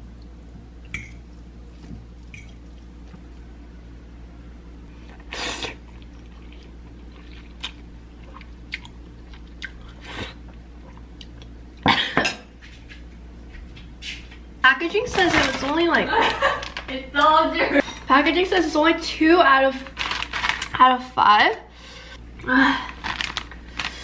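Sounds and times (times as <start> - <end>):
person slurping noodles: 5.1 - 7.5
chewing: 5.1 - 10.0.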